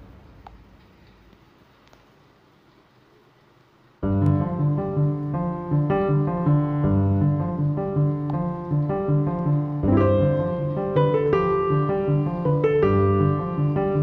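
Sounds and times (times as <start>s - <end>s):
keyboard melody with bass: 4.0s - 14.0s.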